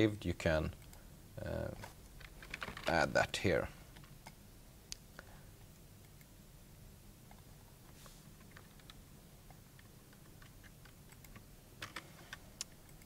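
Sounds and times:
keyboard typing: 1.8 - 3.0, 8.4 - 13.0.

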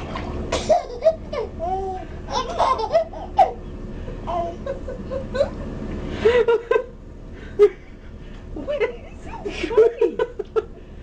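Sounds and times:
babies laughing: 0.6 - 5.6.

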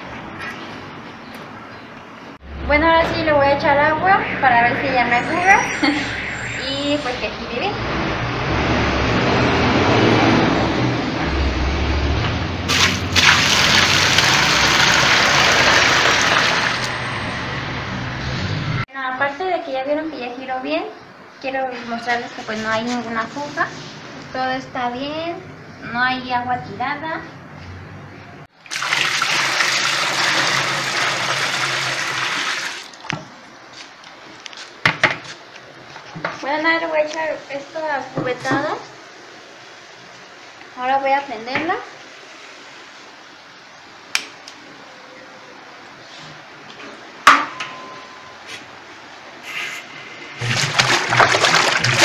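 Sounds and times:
water gushing into plastic tub: 12.7 - 16.9, 28.6 - 33.1, 50.4 - 52.0.

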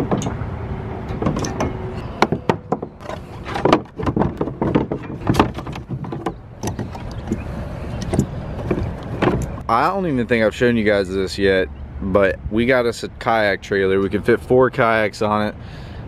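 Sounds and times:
metal hardware clicks and clanks: 0.0 - 7.4.

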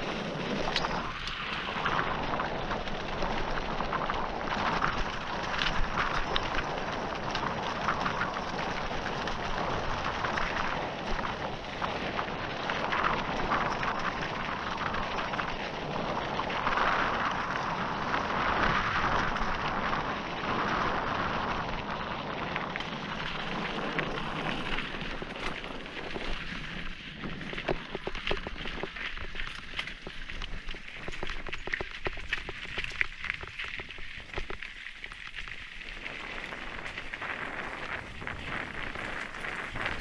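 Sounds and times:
bike tyres crunching gravel: 0.0 - 40.0
bike clicks and rattles: 22.3 - 40.0.

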